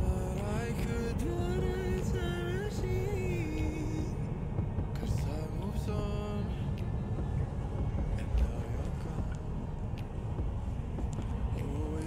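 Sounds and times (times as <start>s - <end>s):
road and tyre rumble in car: 0.0s - 12.0s.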